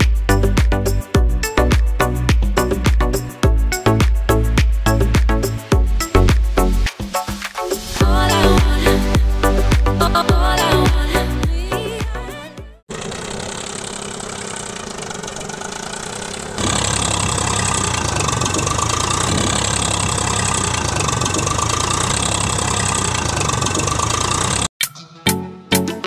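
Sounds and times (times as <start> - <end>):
tractor engine running: 12.9 - 24.7.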